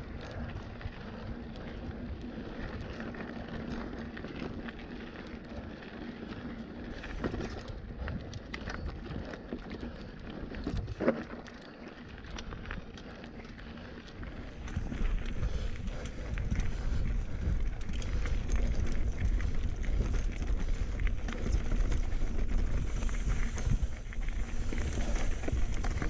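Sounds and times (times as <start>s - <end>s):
bike tyres on dirt trail: 0.0s - 26.0s
bike rattling and knocking: 6.9s - 12.6s, 13.4s - 26.0s
wind on microphone: 13.5s - 26.0s.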